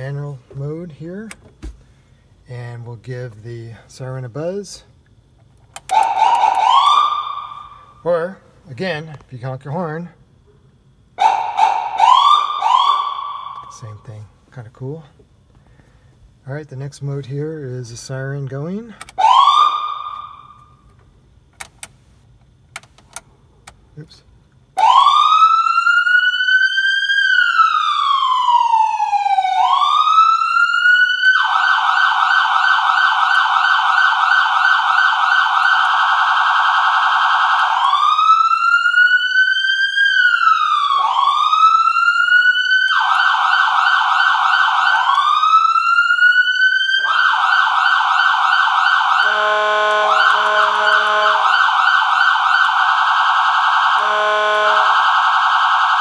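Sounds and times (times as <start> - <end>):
low choppy siren tone: 5.8 - 8.1, 11.2 - 14.0, 24.8 - 56.0
electronic siren wail and yelp: 5.9 - 7.8, 11.2 - 13.7, 19.2 - 20.6, 24.8 - 56.0.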